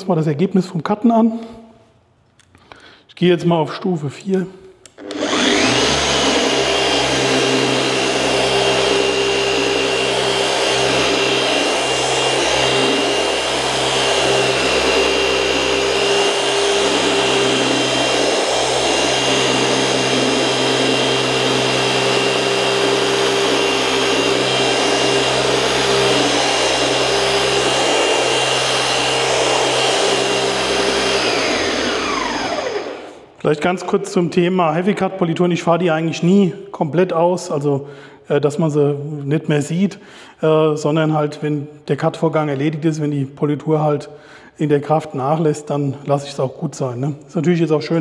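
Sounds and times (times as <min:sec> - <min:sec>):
polisher motor whine: 0:04.8 - 0:33.4.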